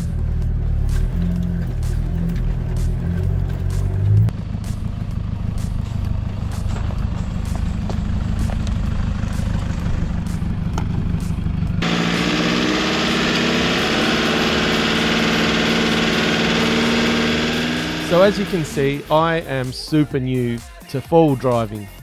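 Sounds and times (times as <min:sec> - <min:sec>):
truck engine rumbling: 0:00.0 - 0:20.6
steady engine drone with hiss: 0:03.6 - 0:19.8.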